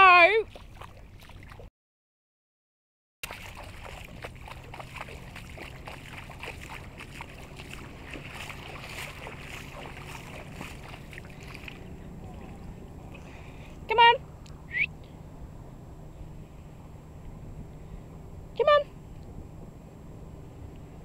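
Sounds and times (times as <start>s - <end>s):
water lapping among rocks: 0.5s - 1.7s, 3.2s - 13.4s
low steady hum: 3.2s - 21.0s.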